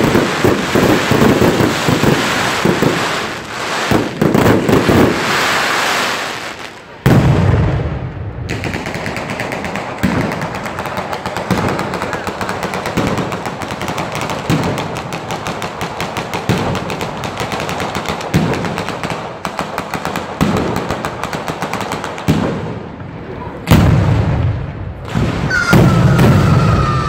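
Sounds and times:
heavier firecracker bangs: 0:00.0 - 0:05.4, 0:07.0 - 0:13.4, 0:23.7 - 0:27.0
firecrackers rattling: 0:00.0 - 0:06.8, 0:08.5 - 0:22.4.

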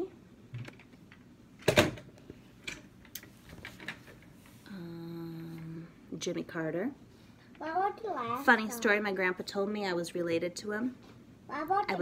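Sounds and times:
woman humming hesitantly: 0:04.7 - 0:06.0.

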